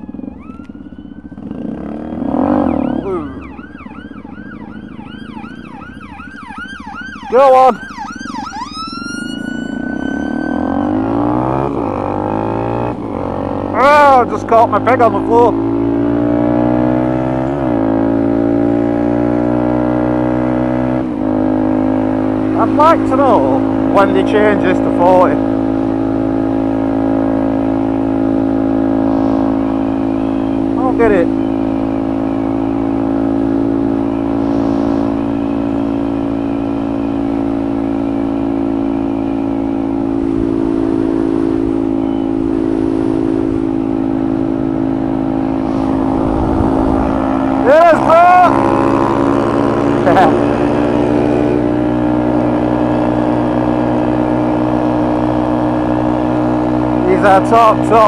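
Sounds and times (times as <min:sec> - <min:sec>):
motorcycle engine running: 0:00.0 - 0:58.0
wind rushing past microphone: 0:40.2 - 0:52.3.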